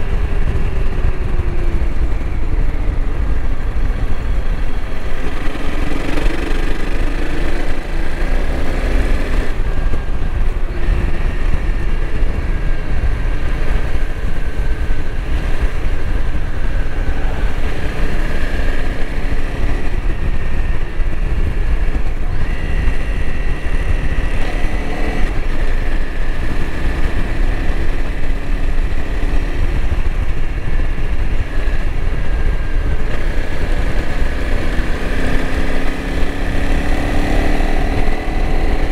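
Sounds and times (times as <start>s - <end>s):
motorcycle engine revving: 0.0s - 38.9s
wind rumble on microphone: 0.0s - 38.9s.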